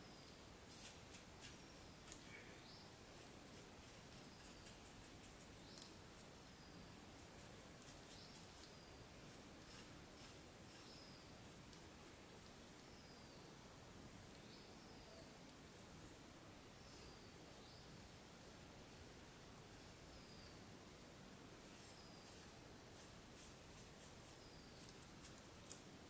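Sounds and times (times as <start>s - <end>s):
paintbrush bristles scratching: 0.2s - 2.2s, 3.0s - 13.0s, 21.6s - 25.8s.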